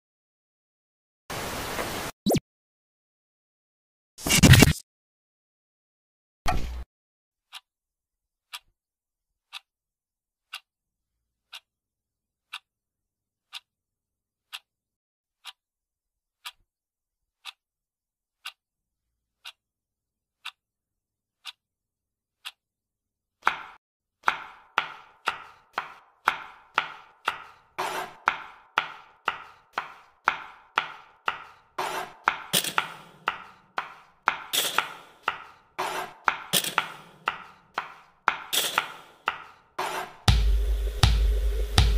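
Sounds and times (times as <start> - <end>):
clock ticking: 8.5 - 8.7, 9.5 - 9.7, 10.5 - 10.7, 11.5 - 11.7, 12.4 - 12.7, 13.4 - 13.7, 14.4 - 14.7, 16.4 - 16.6, 17.4 - 17.6, 18.4 - 18.6, 19.4 - 19.6, 20.4 - 20.6, 21.4 - 21.6, 23.4 - 39.6, 40.3 - 41.9
cleaver chopping on cutting board: 23.4 - 41.9.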